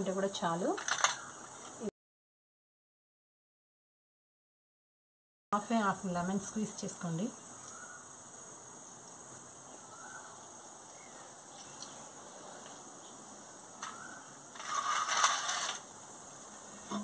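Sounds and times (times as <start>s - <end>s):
insects chirring: 0.0s - 1.9s, 5.6s - 17.0s
loud rustling scrape: 14.5s - 15.8s.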